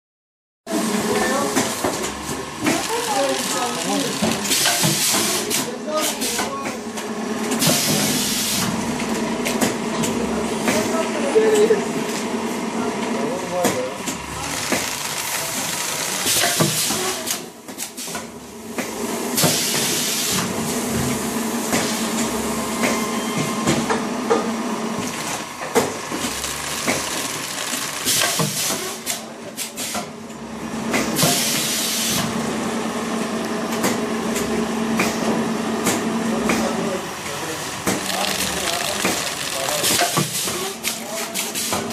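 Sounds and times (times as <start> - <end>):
packaging machine hum: 0.7 - 41.9
pneumatic air hiss: 7.6 - 8.7, 19.4 - 20.4, 31.2 - 32.2.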